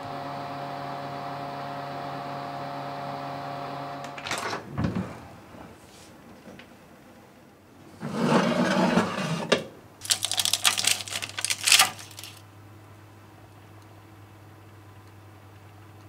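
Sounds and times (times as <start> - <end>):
meringue cookie crackling: 10.0 - 12.4.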